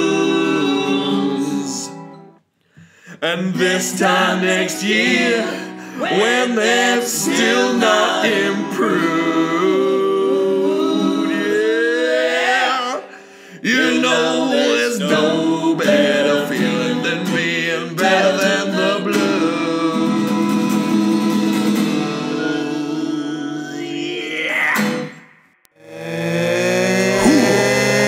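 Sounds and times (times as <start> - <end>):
strummed acoustic guitar: 15.1 - 22.8.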